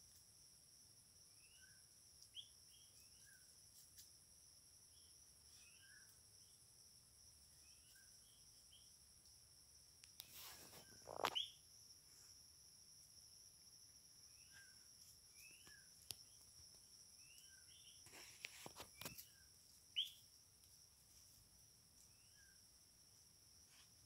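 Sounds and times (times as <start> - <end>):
high insect drone: 0.0 - 24.0
rising bird chirps: 10.6 - 11.6, 19.9 - 20.2.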